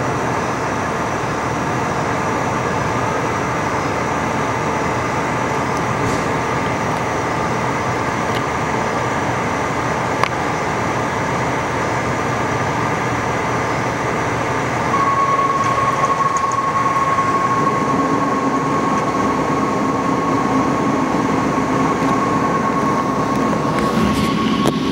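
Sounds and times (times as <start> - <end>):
fire engine idling: 0.0 - 24.9
steady high whine: 0.0 - 24.9.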